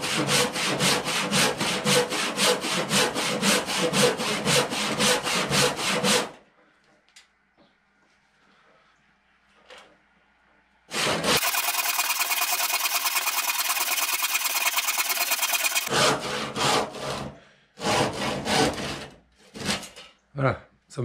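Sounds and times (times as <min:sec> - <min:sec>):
handsaw cutting wood: 0:00.0 - 0:06.4, 0:10.9 - 0:19.8.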